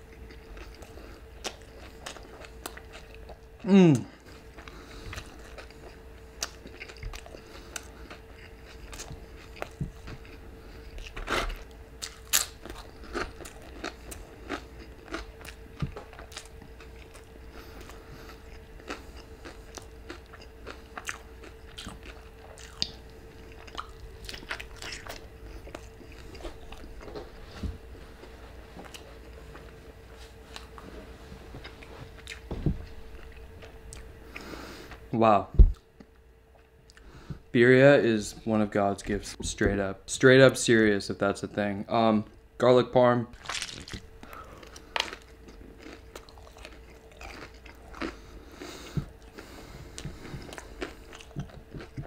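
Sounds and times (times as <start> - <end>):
chewing and biting crispy taco: 0.0 - 27.3, 43.4 - 52.0
faint steady hum: 0.0 - 52.0.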